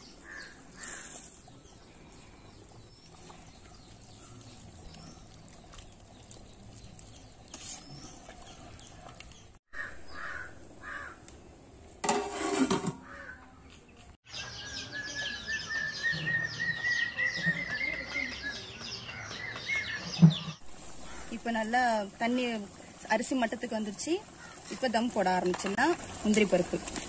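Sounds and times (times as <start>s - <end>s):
crows cawing: 9.7s - 11.3s.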